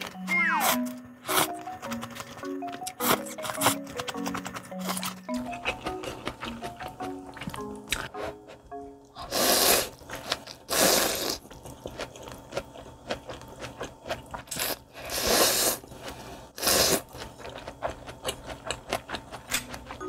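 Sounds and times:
wet chewing: 0.6 - 8.7, 9.3 - 20.0
loud noodle slurps: 9.2 - 11.5, 14.5 - 17.2.

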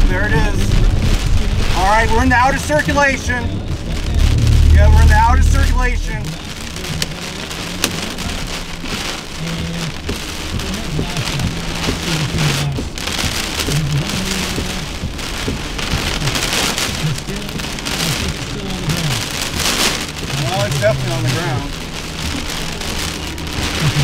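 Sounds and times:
gusty wind: 0.0 - 6.8
heavy rain: 0.0 - 24.0.

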